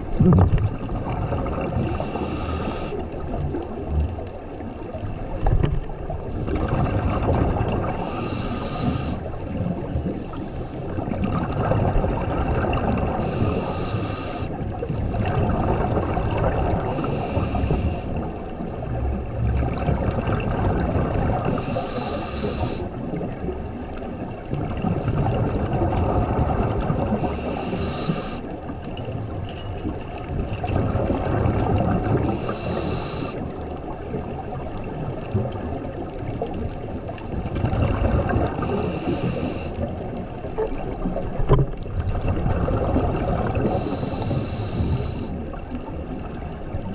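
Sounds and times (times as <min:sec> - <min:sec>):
exhaled bubbles rushing: 0:00.0 - 0:13.8, 0:14.5 - 0:46.9
regulator hissing inhale: 0:01.8 - 0:03.2, 0:07.9 - 0:09.4, 0:13.2 - 0:14.6, 0:16.8 - 0:18.2, 0:21.4 - 0:22.9, 0:27.1 - 0:28.5, 0:32.2 - 0:33.5, 0:38.6 - 0:40.0, 0:43.6 - 0:45.4.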